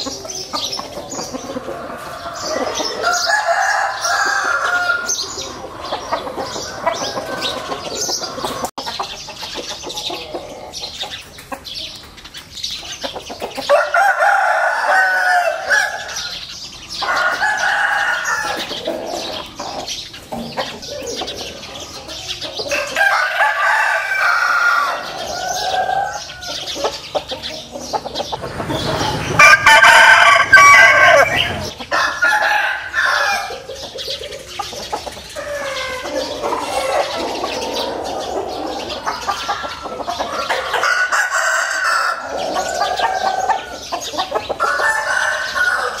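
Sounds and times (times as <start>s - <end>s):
roosters crowing: 0.0s - 11.0s, 13.3s - 46.0s
chickens clucking: 0.0s - 46.0s.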